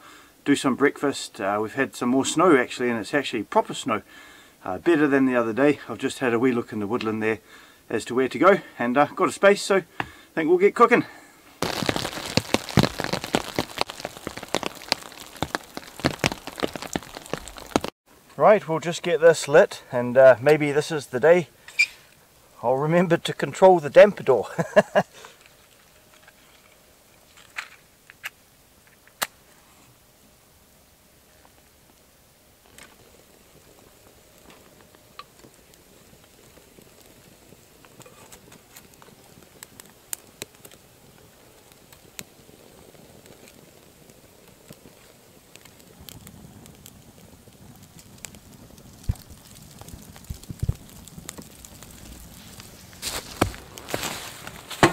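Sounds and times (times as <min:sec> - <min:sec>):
twigs crackling and snapping: 0:11.6 - 0:18.0, 0:24.6 - 0:29.4, 0:32.6 - 0:42.5, 0:43.2 - 0:54.9
snow pattering: 0:11.6 - 0:19.6, 0:23.3 - 0:27.8, 0:31.3 - 0:54.9.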